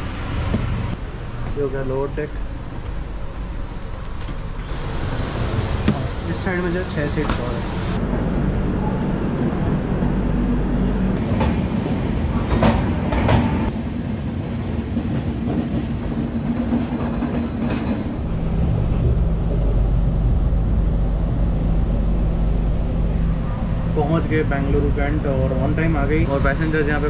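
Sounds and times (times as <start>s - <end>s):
train low rumble: 0.0s - 27.0s
train wheels clacking: 15.0s - 18.2s.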